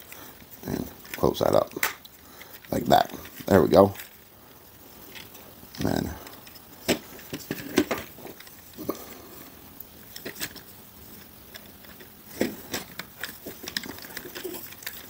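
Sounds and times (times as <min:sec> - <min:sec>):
plastic toy parts clicking: 0:10.1 - 0:15.0.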